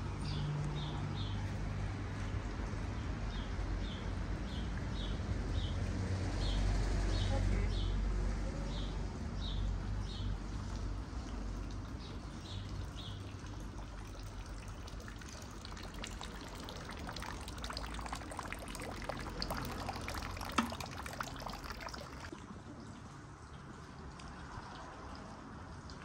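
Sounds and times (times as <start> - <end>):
running water splashing and trickling: 9.6 - 26.0.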